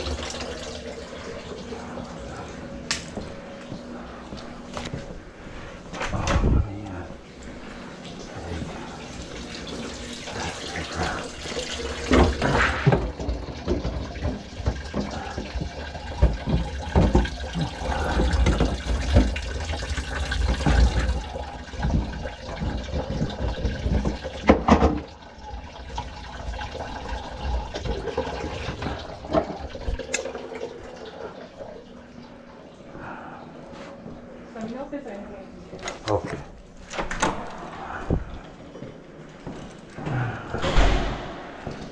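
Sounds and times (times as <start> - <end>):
pipes and bucket knocking: 9.7 - 30.7.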